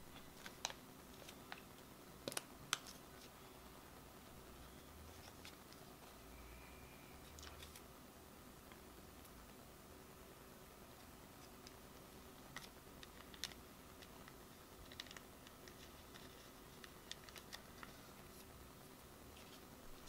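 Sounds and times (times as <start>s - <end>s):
faint steady hum: 0.0s - 20.0s
small clicks and ticks: 12.4s - 18.0s.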